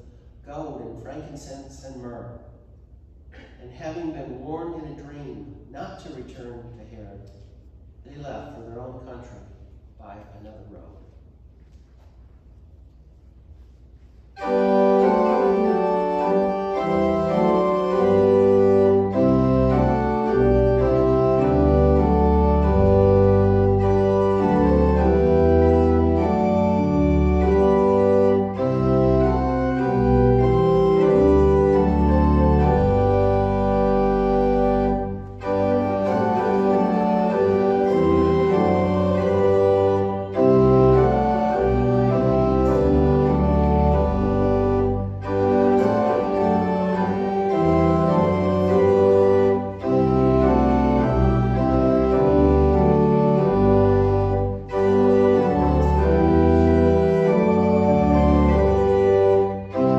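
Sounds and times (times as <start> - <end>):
church organ playing chords: 14.3 - 59.9.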